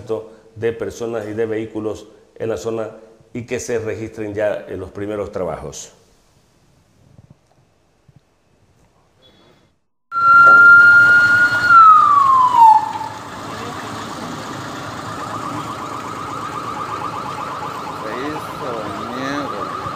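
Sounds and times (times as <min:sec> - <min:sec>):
emergency vehicle siren: 0:10.1 - 0:19.9.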